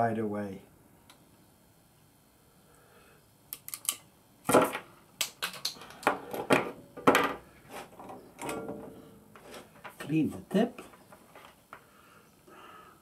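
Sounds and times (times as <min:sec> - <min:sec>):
crimping pliers clicking: 0:03.5 - 0:04.0.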